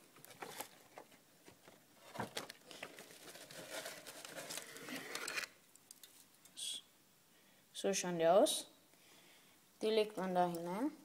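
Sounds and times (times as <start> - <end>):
cardboard box crinkling and rustling: 0.3 - 5.5.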